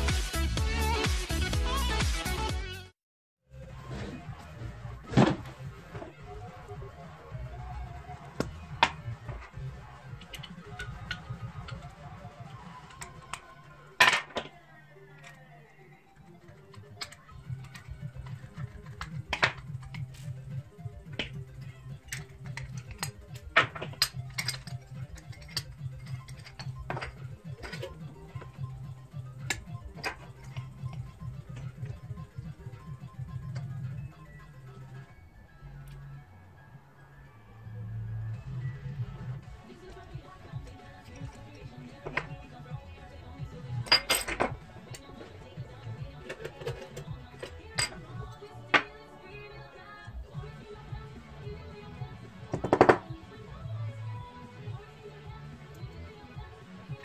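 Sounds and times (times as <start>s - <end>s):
background music: 0.0s - 57.0s
small parts and tools clinking on desk: 21.6s - 28.6s, 43.8s - 45.3s.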